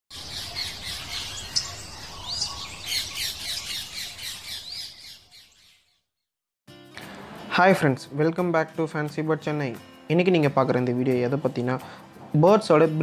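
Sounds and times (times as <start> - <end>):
parrots chirping and squawking: 0.1 - 5.8.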